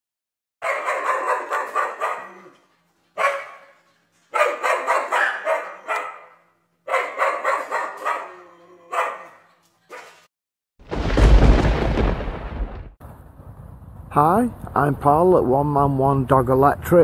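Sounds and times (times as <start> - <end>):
dog barking: 0.6 - 2.6, 3.2 - 10.3.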